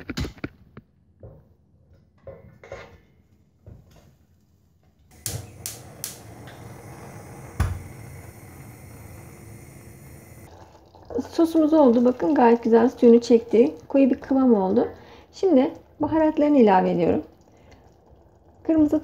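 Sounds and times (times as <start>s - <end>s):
steady hiss: 5.1s - 10.5s.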